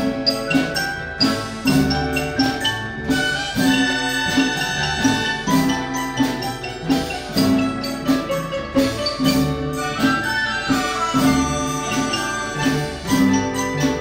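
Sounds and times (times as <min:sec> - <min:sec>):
orchestra playing lively piece: 0:00.0 - 0:14.0.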